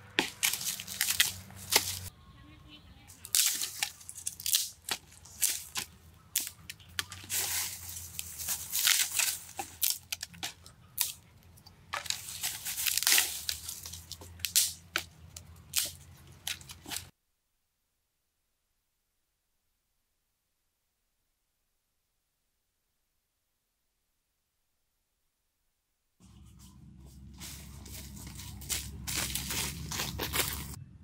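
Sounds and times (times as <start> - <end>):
dry leaves crackling: 0.0 - 2.1, 3.1 - 17.1, 26.2 - 30.8
dry sticks snapping: 0.1 - 2.1, 3.2 - 17.1, 27.4 - 30.8.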